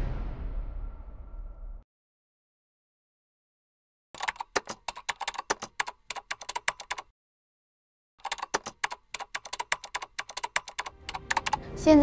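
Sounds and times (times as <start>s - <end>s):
keyboard typing clicks: 4.2s - 7.1s, 8.2s - 11.6s.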